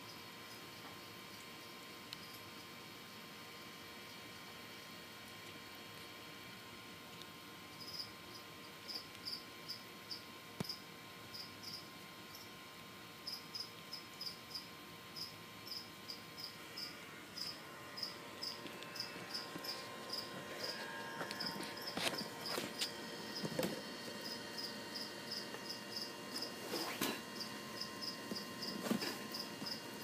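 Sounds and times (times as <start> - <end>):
cricket chirping: 7.8 - 12.5, 13.2 - 23.6, 24.2 - 26.5, 27.4 - 29.9.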